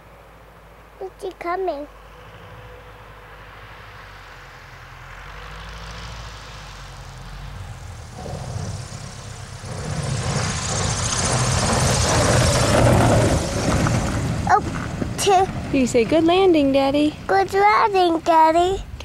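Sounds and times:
propeller plane engine humming: 6.0s - 19.0s.

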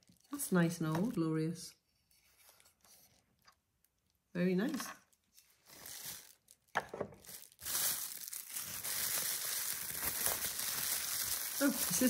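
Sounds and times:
bubble wrap crinkling: 0.0s - 1.2s, 5.0s - 12.0s.

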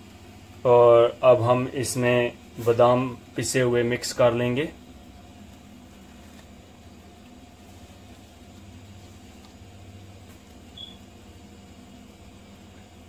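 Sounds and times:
high-pitched chirp: 10.8s - 11.0s.

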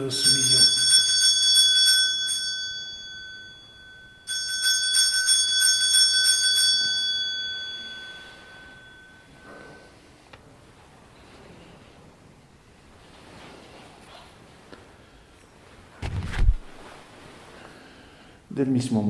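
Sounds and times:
small bells pealing: 0.0s - 10.2s.

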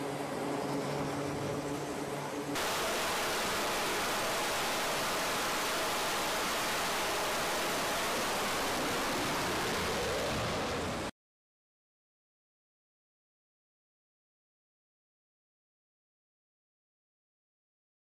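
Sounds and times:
jet engines roaring: 0.0s - 11.1s
low droning hum: 0.0s - 11.1s.

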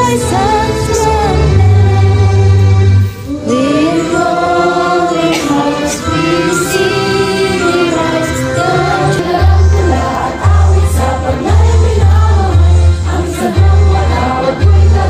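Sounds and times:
girls singing: 0.0s - 2.7s, 3.3s - 15.0s
instrumental music with heavy bass: 6.2s - 15.0s.

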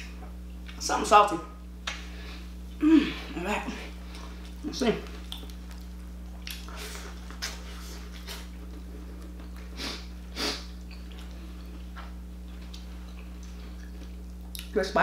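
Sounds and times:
steady low hum: 0.0s - 15.0s
person chewing corn: 4.0s - 14.7s
short sniffs: 9.8s - 10.7s.

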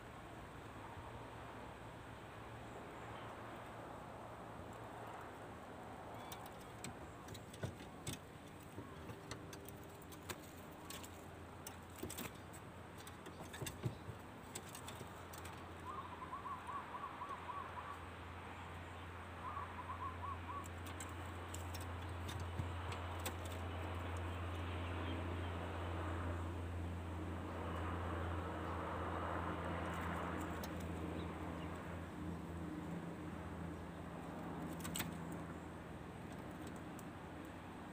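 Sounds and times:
small bird trill: 6.1s - 7.7s, 13.1s - 25.2s.

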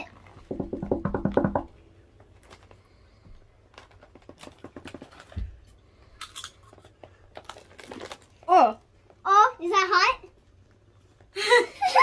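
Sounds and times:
chip bag crinkling: 2.2s - 5.4s, 6.2s - 8.8s.

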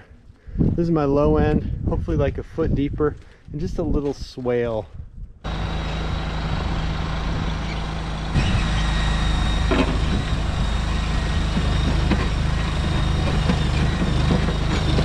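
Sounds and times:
mini skid steer engine whine: 5.5s - 15.0s.

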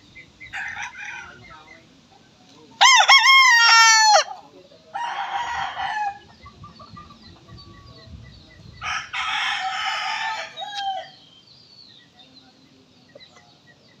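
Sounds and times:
roosters crowing: 0.4s - 1.6s, 2.8s - 7.2s, 8.8s - 11.4s.

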